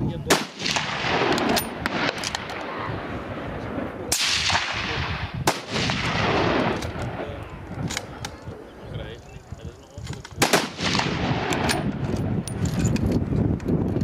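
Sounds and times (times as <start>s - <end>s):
rifle shots echoing: 0.3s - 8.3s, 10.4s - 12.1s.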